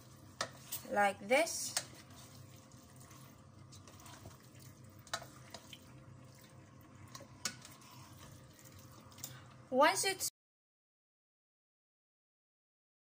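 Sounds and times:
wet stirring sounds: 0.0s - 10.2s.

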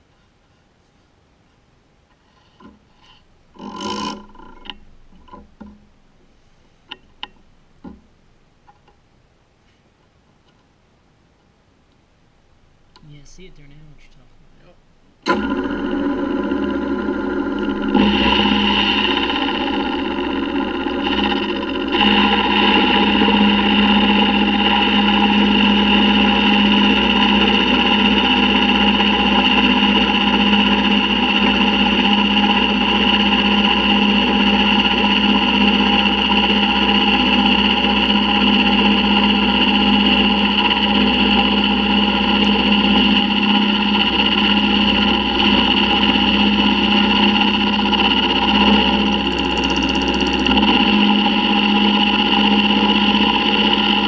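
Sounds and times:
milling machine cutting metal: 15.3s - 54.0s.

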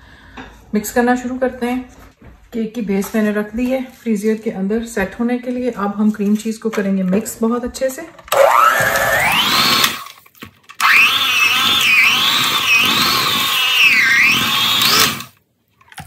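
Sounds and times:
electric hand mixer whining: 8.3s - 10.1s, 10.8s - 15.4s.

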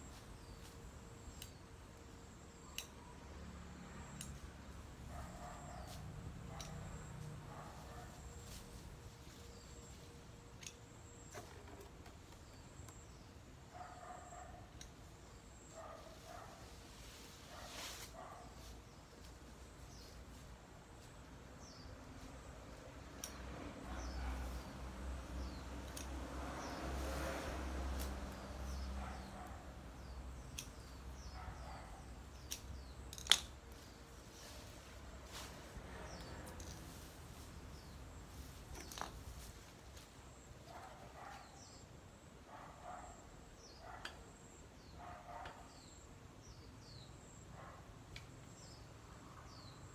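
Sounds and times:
leafy branches rustling: 4.3s - 11.4s, 16.0s - 31.1s, 32.0s - 41.6s
stems snapping: 32.4s - 33.8s.

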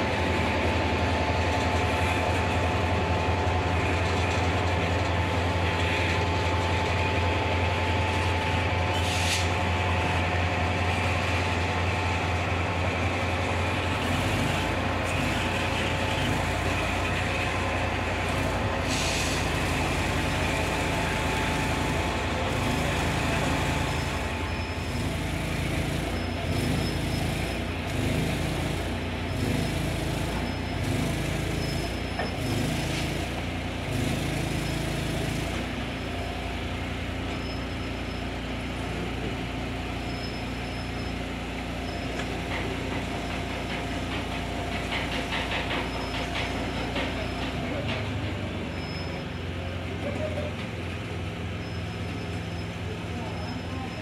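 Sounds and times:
train wheels clacking on rails: 41.1s - 49.5s.

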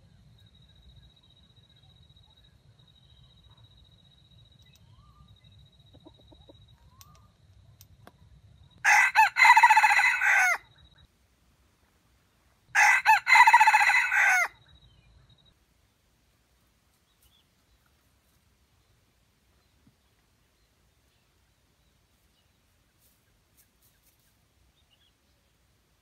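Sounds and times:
rooster crowing: 8.8s - 10.7s, 12.7s - 14.6s.

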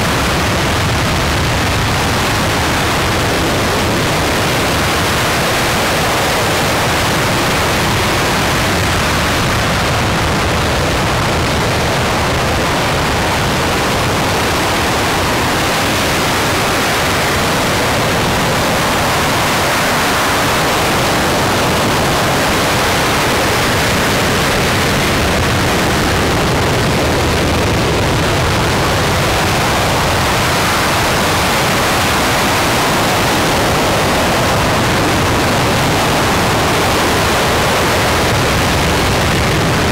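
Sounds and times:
rocket engine roaring: 0.0s - 39.9s.

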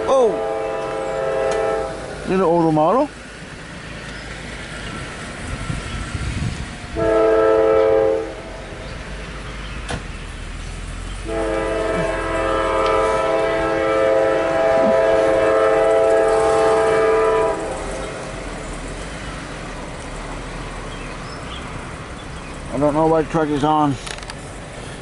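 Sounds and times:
locomotive air horn blast: 0.0s - 2.3s, 6.9s - 8.8s, 11.2s - 18.3s.

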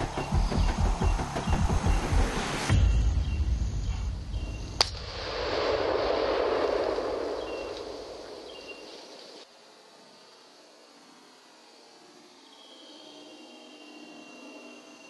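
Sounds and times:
low rumbling noise: 0.0s - 9.4s.

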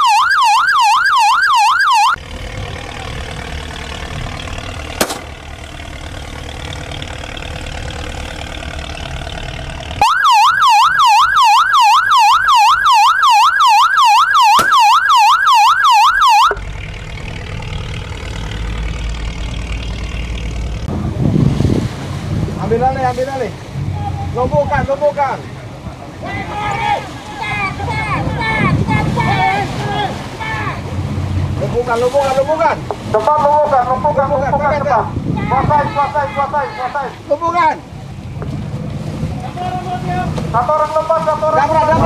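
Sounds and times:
electronic siren yelping: 0.0s - 2.2s, 10.0s - 16.6s
boat engine: 0.0s - 42.0s
water noise: 0.0s - 42.0s
wind: 0.0s - 42.0s
sharp crack: 2.8s - 6.5s, 14.5s - 15.0s.

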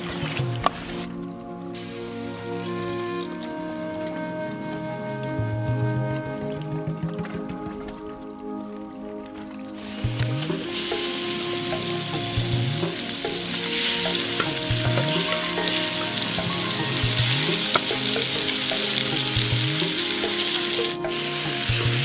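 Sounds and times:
soft background music: 0.0s - 22.0s
food sizzling in hot oil: 9.8s - 22.0s.

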